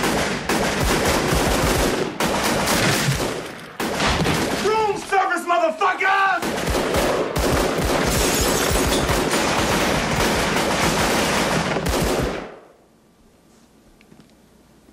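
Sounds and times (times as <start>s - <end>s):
rapid handgun fire: 0.0s - 4.8s, 6.4s - 12.7s.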